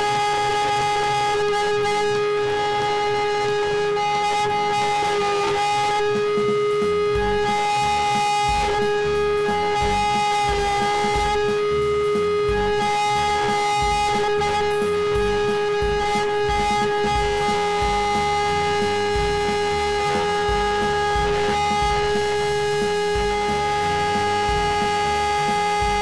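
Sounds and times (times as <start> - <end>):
guitar background music: 0.0 - 26.0
router spindle whining cutting wood: 0.0 - 26.0.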